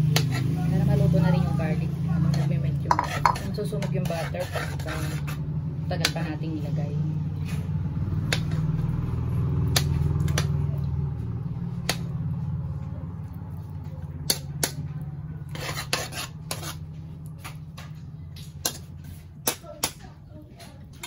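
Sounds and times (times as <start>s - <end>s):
metal spatula scraping a wok: 2.2s - 5.6s, 15.3s - 17.2s.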